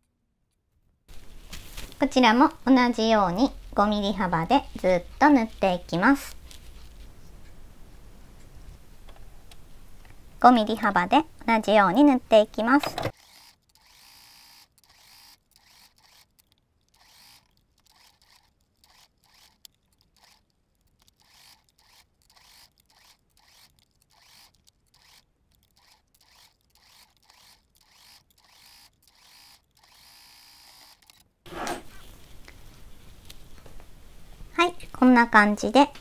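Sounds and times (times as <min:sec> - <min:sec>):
sewing machine stitching: 0:12.7 - 0:20.4, 0:21.0 - 0:31.8
motor hum: 0:12.8 - 0:20.4, 0:21.0 - 0:31.2.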